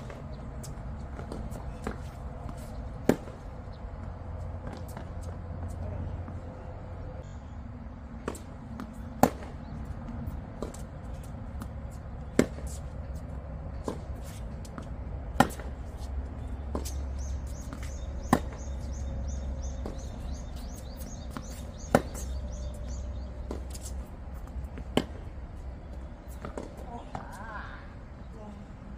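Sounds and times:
tennis racket hitting ball: 0.0 - 3.5, 8.2 - 9.6, 12.3 - 12.8, 13.8 - 16.0, 17.6 - 18.7, 19.8 - 22.4
tennis ball bouncing: 0.0 - 6.5, 8.2 - 27.3.

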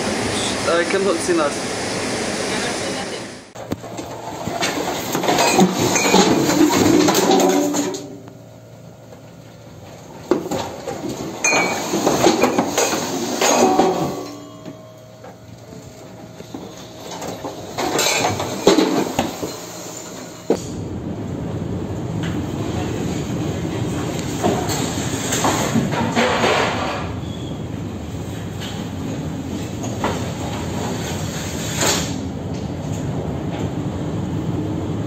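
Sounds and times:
objects sliding and clattering: 3.7 - 8.1, 10.3 - 14.6, 16.4 - 20.4, 24.3 - 27.2.

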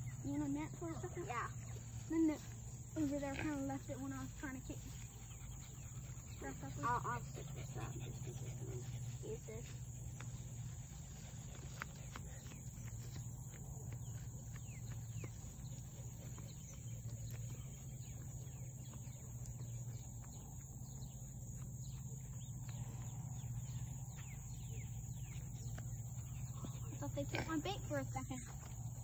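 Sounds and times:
birds chirping: 0.0 - 29.0.

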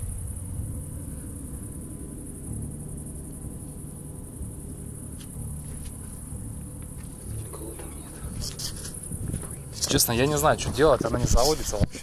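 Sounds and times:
crickets trilling: 0.0 - 12.0
low rumble: 0.0 - 12.0.

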